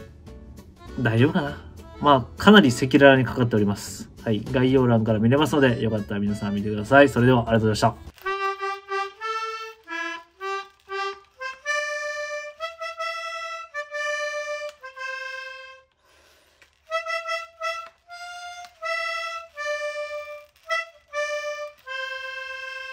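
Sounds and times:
simple melody of held notes: 0:08.2 - 0:16.0, 0:16.9 - 0:22.9.

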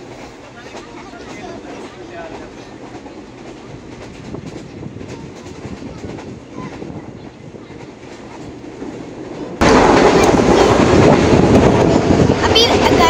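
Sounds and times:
train running rumble: 0:00.0 - 0:13.0.

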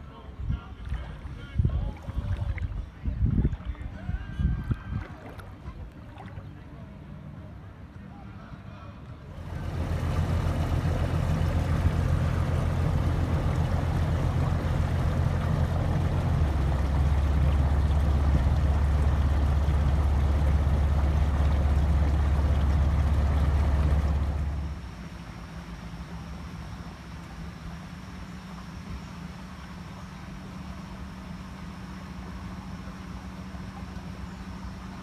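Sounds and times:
water noise: 0:00.0 - 0:07.2, 0:09.3 - 0:35.0
small boat engine rumble: 0:00.0 - 0:35.0
wind noise on microphone: 0:00.3 - 0:05.9.

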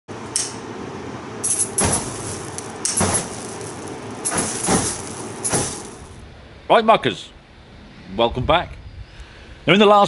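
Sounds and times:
steady hiss: 0:01.5 - 0:06.2.

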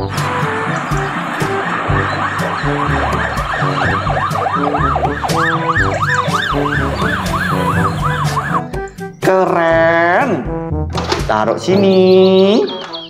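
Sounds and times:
toy car electronic siren: 0:00.0 - 0:08.8.

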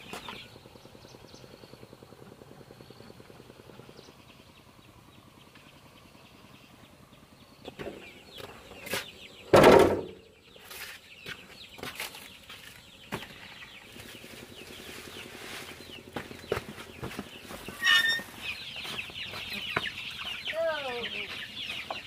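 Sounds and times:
chickens peeping and clucking: 0:00.0 - 0:22.0
knocks: 0:09.5 - 0:10.2.

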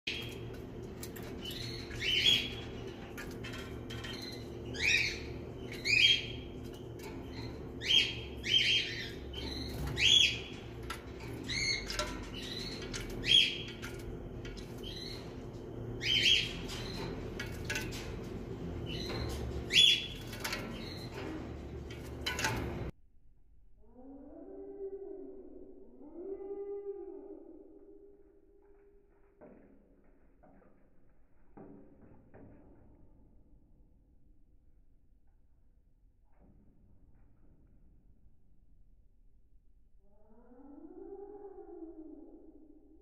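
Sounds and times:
low hum: 0:00.1 - 0:32.6.

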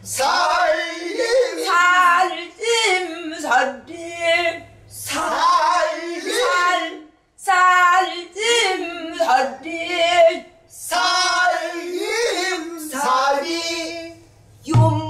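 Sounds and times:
woman singing with vibrato: 0:00.5 - 0:10.5, 0:14.7 - 0:15.0.

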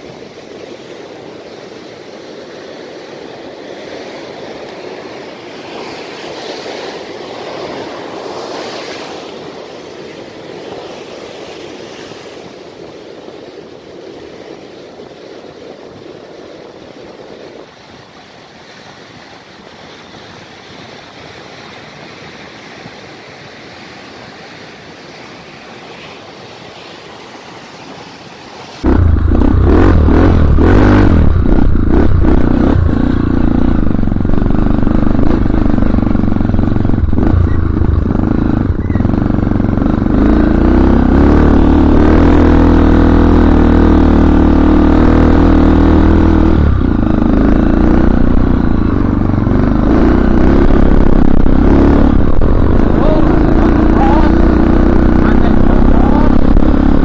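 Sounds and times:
surf breaking on beach: 0:00.0 - 0:39.2, 0:39.8 - 0:57.0
motorcycle engine on dirt track: 0:28.8 - 0:57.0.

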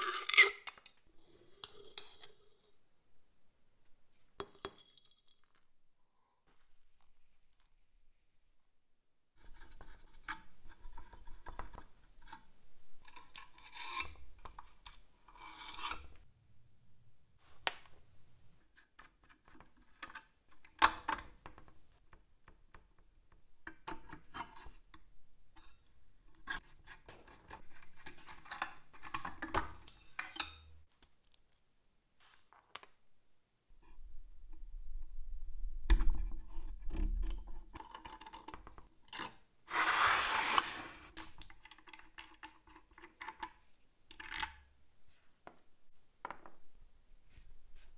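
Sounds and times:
hand tool scraping and rubbing: 0:39.7 - 0:41.2.

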